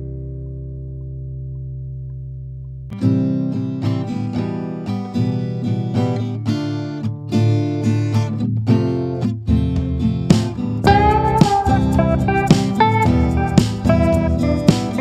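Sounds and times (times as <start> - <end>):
acoustic guitar strumming: 3.0 - 15.0
held low chord: 10.8 - 15.0.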